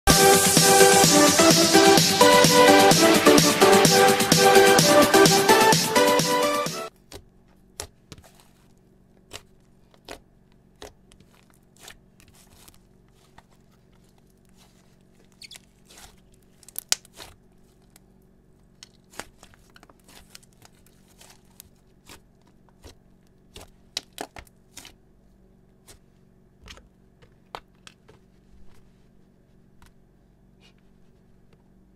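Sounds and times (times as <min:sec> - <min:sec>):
slime sticky pops and crackles: 0:16.6 - 0:17.3.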